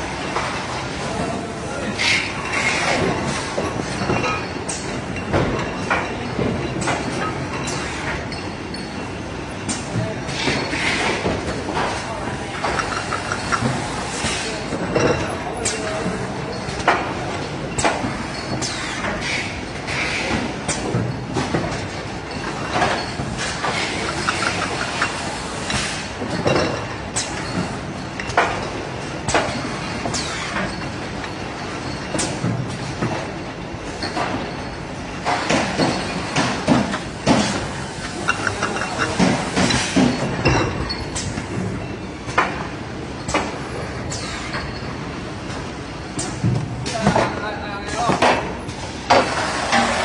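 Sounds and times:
bottles clinking: 0:02.0 - 0:19.0, 0:19.7 - 0:33.4, 0:34.0 - 0:42.1.

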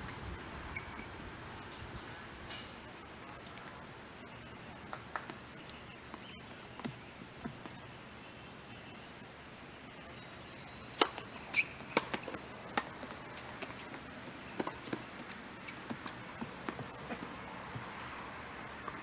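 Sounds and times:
steady hiss: 0:00.0 - 0:19.0
tennis balls struck by rackets: 0:10.9 - 0:17.9
balls bouncing on hard court: 0:11.0 - 0:17.9.

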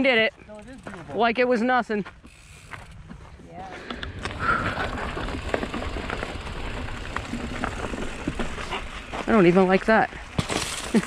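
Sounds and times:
low rumble: 0:03.9 - 0:09.4
rocks crunching and clattering: 0:03.9 - 0:11.0.

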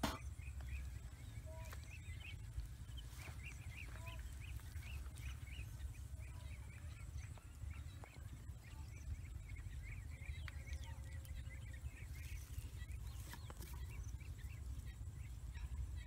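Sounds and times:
small birds chirping: 0:00.0 - 0:16.0.

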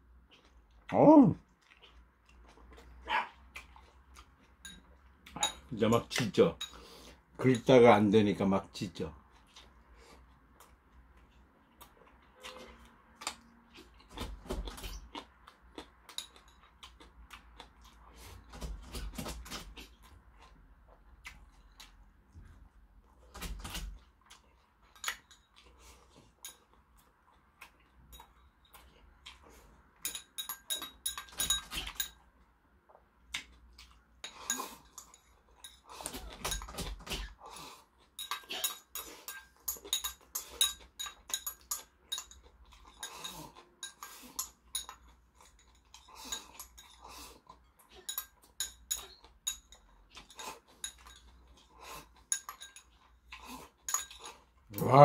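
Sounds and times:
soft chewing: 0:00.0 - 0:07.8, 0:08.9 - 0:55.0
chopsticks clinking on bowls: 0:04.5 - 0:07.8, 0:16.0 - 0:17.0, 0:26.3 - 0:27.1, 0:30.0 - 0:32.3, 0:33.8 - 0:37.2, 0:38.0 - 0:47.1, 0:47.8 - 0:53.2, 0:53.8 - 0:54.5.

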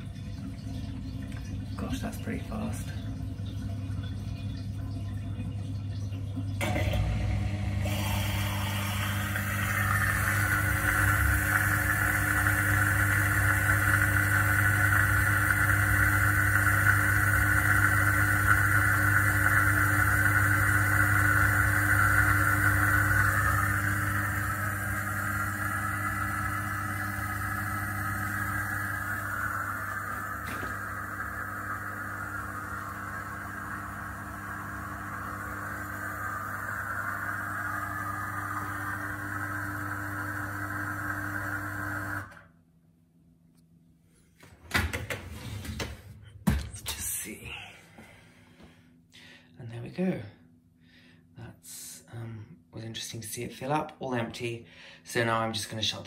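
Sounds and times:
dishwasher pump humming: 0:00.0 - 0:42.6
high whirr: 0:06.6 - 0:42.5.

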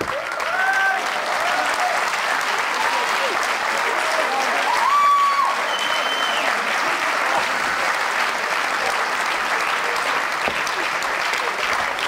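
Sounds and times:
crowd cheering and applauding: 0:00.0 - 0:12.0
short held whistles: 0:05.7 - 0:06.4.

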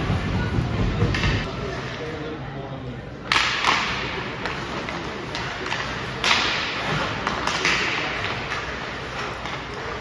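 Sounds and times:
hockey sticks cracking on puck: 0:03.2 - 0:10.0.

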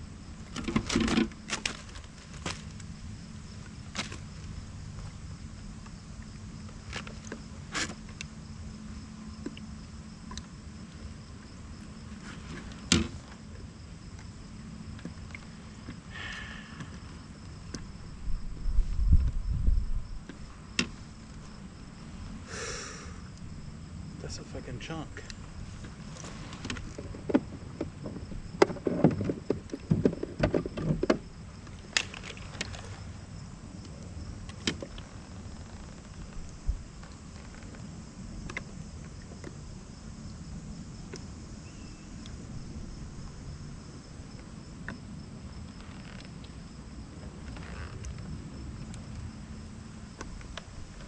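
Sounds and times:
faint steady hum: 0:00.0 - 0:51.0
knocks and clatter on plastic kayak: 0:00.4 - 0:05.2, 0:12.1 - 0:16.1, 0:25.4 - 0:33.3, 0:34.0 - 0:39.8.

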